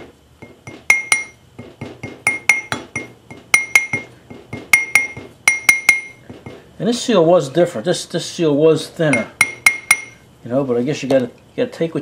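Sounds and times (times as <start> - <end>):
hammer tapping on metal: 0.4 - 6.6, 9.1 - 10.2.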